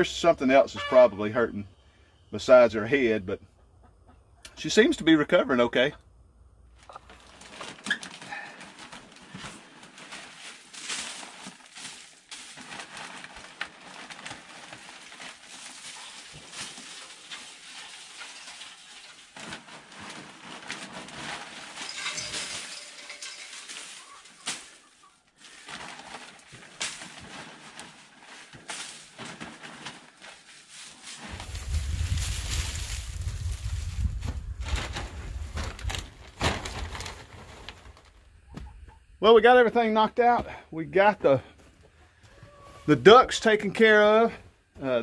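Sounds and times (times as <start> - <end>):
scraping and rustling bedding: 7.1 - 38.2
wind rumble on microphone: 31.3 - 36.0.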